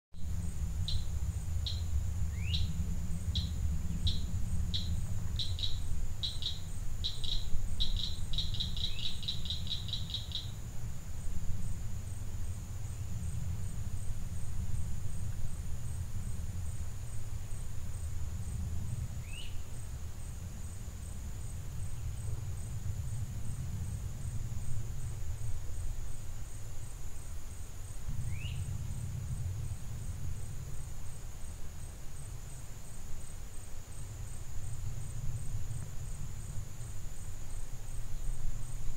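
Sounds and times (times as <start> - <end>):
low rumble: 0.2 - 26.3, 27.9 - 31.2
bird singing trill: 0.8 - 10.6, 19.2 - 19.6, 28.3 - 28.7.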